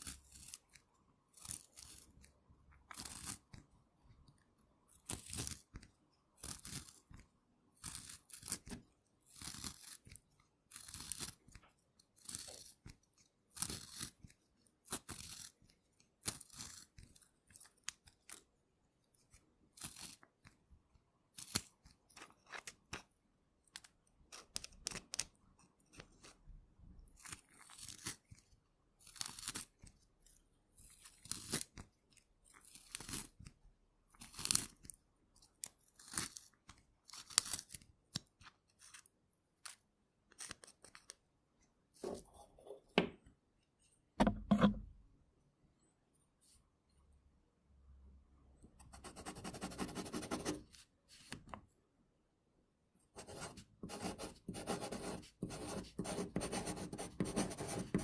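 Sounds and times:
pencil sharpener scraping wood: 0:53.2 - 0:58.0.

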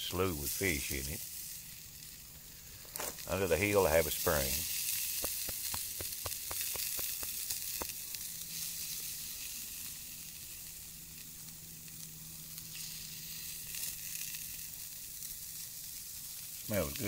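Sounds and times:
patties sizzling on grill: 0:00.0 - 0:17.0
sharp pops: 0:04.4 - 0:08.2.

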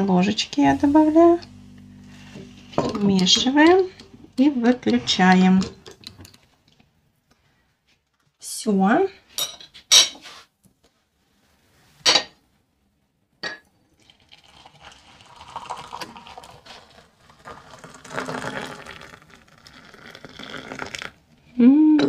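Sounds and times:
coffee pouring into a cup: 0:13.9 - 0:21.2.

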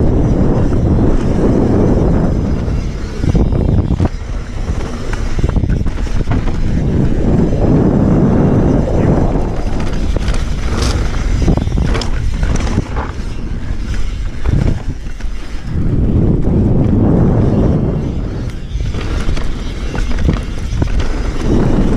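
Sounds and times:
bike rattling over bumps: 0:00.0 - 0:21.9
bike tyres on dirt: 0:00.0 - 0:21.9
wind on microphone: 0:00.0 - 0:21.9.

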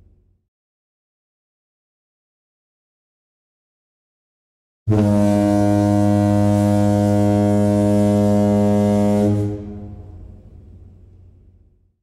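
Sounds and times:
ship's horn blast: 0:04.9 - 0:10.7.

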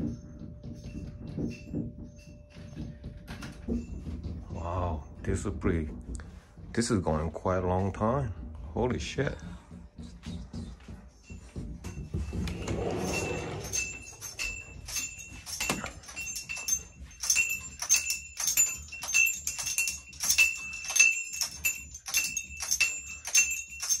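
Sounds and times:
metal objects clinking: 0:11.2 - 0:24.0.

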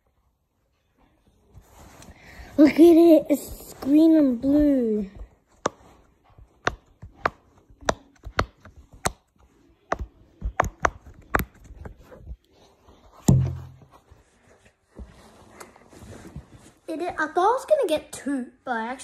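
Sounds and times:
loud thump: 0:13.3 - 0:13.9.

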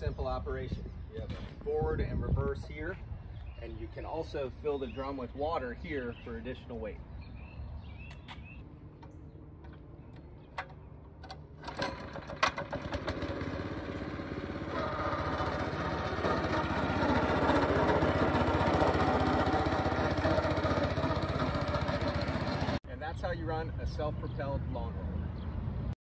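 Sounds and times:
small gas engine running: 0:11.3 - 0:22.8.

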